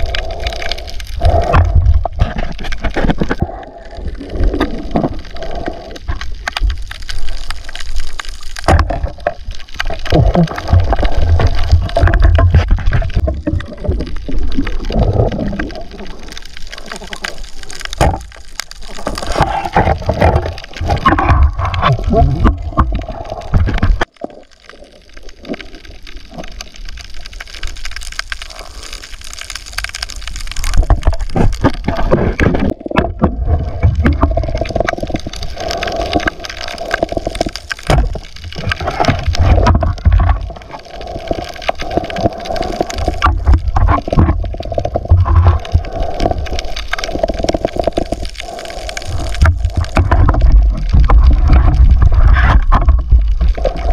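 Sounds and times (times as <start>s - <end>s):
seawater sloshing and gurgling: 30.7s - 53.9s.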